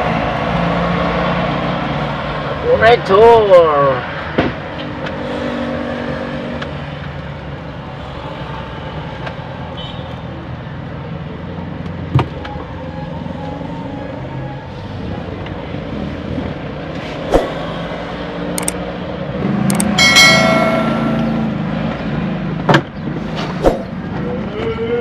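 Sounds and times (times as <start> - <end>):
hand tools clicking on plastic housing: 19.7 - 19.9.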